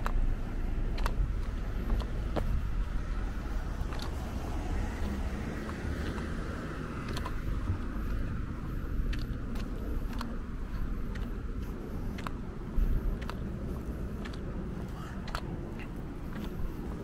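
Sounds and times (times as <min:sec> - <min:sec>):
low outdoor rumble: 0:00.0 - 0:17.0
faint ticks: 0:08.9 - 0:14.5.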